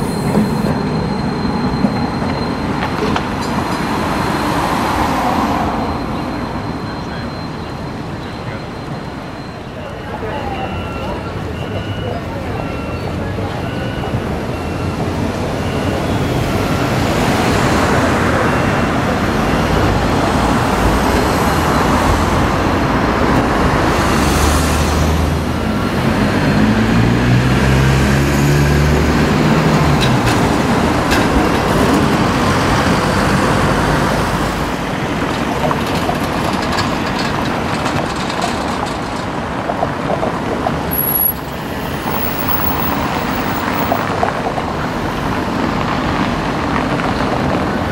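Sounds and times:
passing cars: 0:00.0 - 0:47.9
trams passing: 0:00.0 - 0:47.9.

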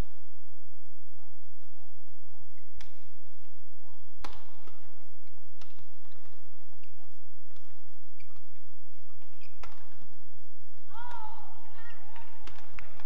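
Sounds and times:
rackets hitting shuttlecock: 0:02.6 - 0:13.0.

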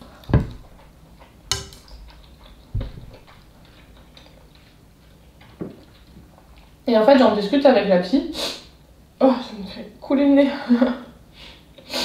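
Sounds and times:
chewing with wet mouth clicks: 0:00.0 - 0:06.8.

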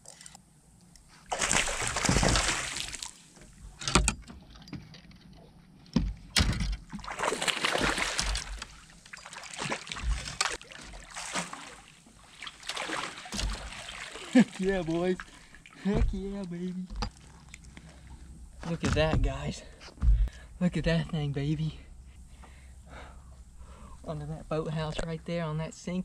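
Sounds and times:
fish thrashing and splashing: 0:01.2 - 0:03.3, 0:06.9 - 0:15.8.

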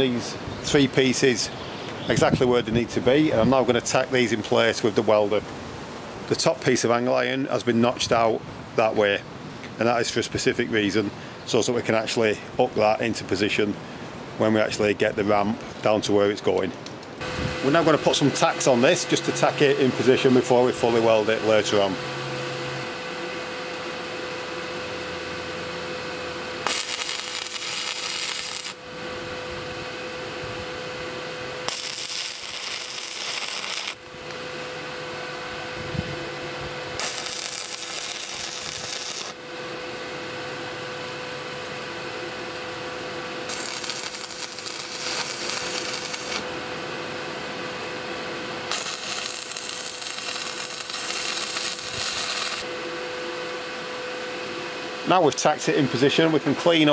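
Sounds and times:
arc welder bursts: 0:00.0 - 0:02.3, 0:17.2 - 0:22.6, 0:24.8 - 0:35.6, 0:36.2 - 0:47.1, 0:48.6 - 0:52.8
steady welder hum: 0:00.0 - 0:15.3, 0:16.4 - 0:56.9.

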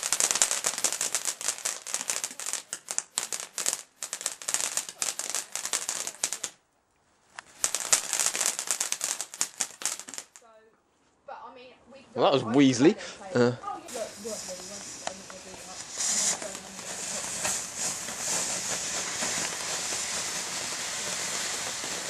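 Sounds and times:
firework fountain crackling: 0:00.0 - 0:06.6, 0:07.2 - 0:10.5, 0:12.6 - 0:22.0.

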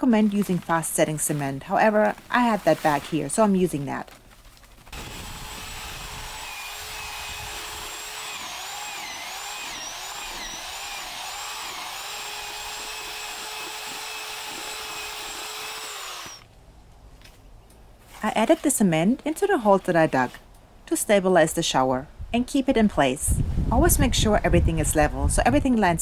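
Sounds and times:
power drill mixing cement: 0:04.9 - 0:16.5.

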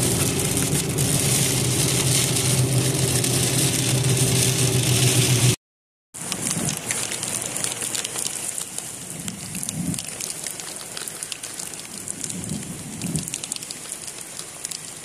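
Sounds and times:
rain on wet pavement: 0:00.0 - 0:05.6, 0:06.2 - 0:15.0
sharp raindrop ticks: 0:06.2 - 0:15.0.

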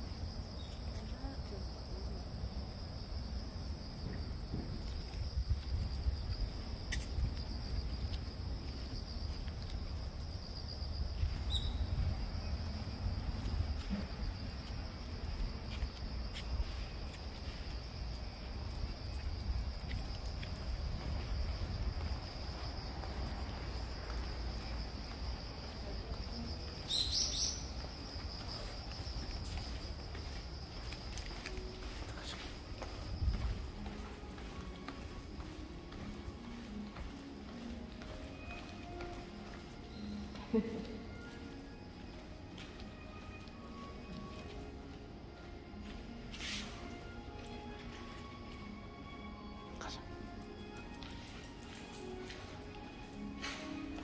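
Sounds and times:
high-pitched insect chorus: 0:00.0 - 0:40.4
bird chirp: 0:11.5 - 0:11.9, 0:26.9 - 0:27.8.

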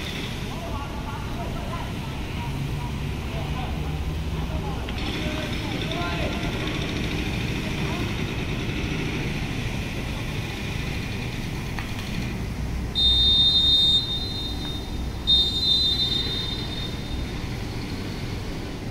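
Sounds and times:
referee's whistle blasts: 0:13.0 - 0:17.2.

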